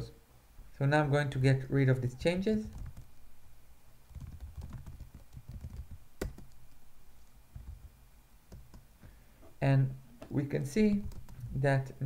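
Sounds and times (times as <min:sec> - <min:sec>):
typing on computer keyboard: 0:02.7 - 0:03.1, 0:04.1 - 0:06.7, 0:07.5 - 0:07.9, 0:11.0 - 0:11.5.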